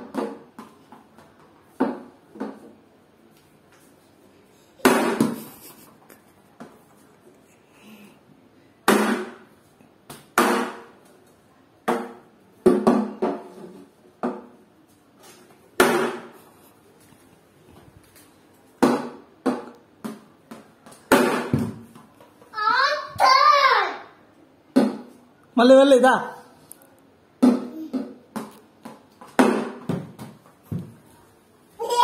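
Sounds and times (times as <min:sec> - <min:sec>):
plastic bat knocking on tiled floor: 0:04.8 - 0:05.4, 0:10.1 - 0:11.0, 0:11.8 - 0:13.6, 0:15.8 - 0:16.4, 0:18.8 - 0:22.1, 0:24.7 - 0:25.1, 0:27.4 - 0:31.0.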